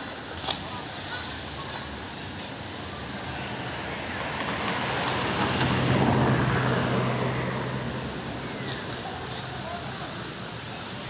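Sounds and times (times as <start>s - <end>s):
vehicle passing by: 2.9s - 11.0s.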